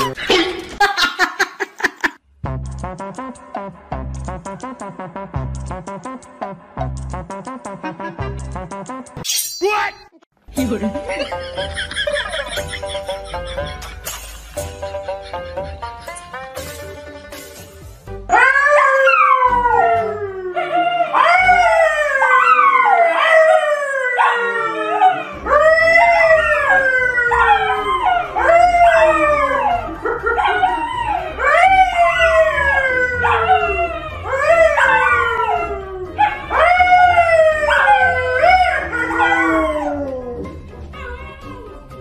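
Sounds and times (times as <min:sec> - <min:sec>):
dog howling: 0:18.3 - 0:41.9.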